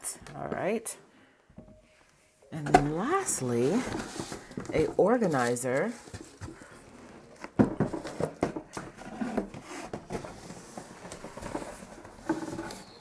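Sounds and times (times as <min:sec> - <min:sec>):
packaging rustling: 0:03.6 - 0:09.0.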